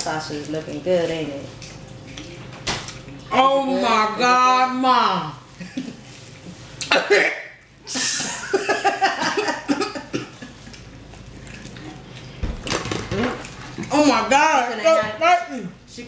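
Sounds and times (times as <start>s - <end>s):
person coughing: 6.8s - 8.2s, 9.3s - 10.5s
laughter: 7.9s - 10.7s.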